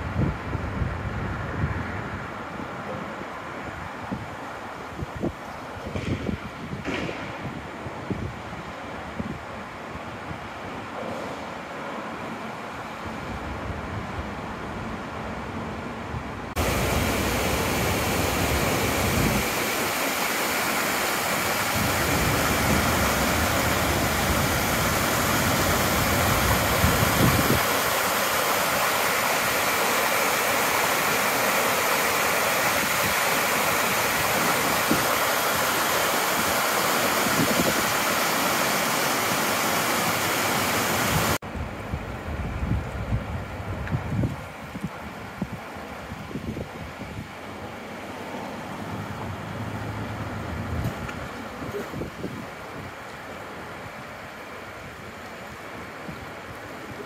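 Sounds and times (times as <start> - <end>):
river water rushing: 8.4 - 41.4, 44.4 - 57.0.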